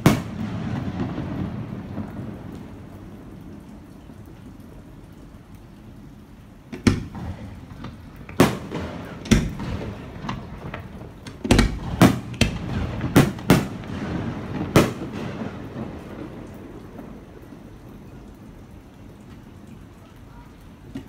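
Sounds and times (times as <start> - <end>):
fireworks bangs: 0.0 - 3.0, 6.7 - 17.4
fireworks crackling: 0.0 - 21.0.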